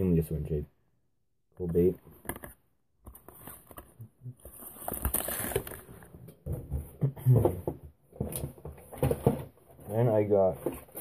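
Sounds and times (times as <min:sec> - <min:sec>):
plastic packaging rustling: 0:03.2 - 0:06.1.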